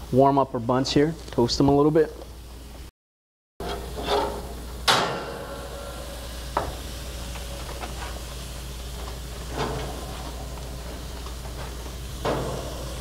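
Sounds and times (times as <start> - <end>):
sharp metallic clank: 3.6 - 7.1, 12.2 - 13.0
steady low hum: 3.6 - 13.0
food sizzling on grill: 3.8 - 13.0.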